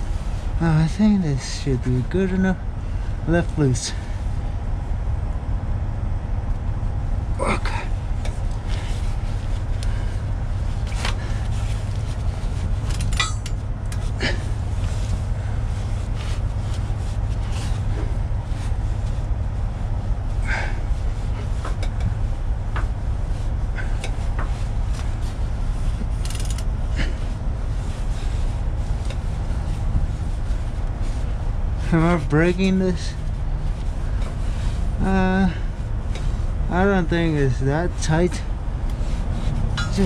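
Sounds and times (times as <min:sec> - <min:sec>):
low rumble: 0:00.0 - 0:32.4
wrench clicking on metal: 0:26.2 - 0:26.6.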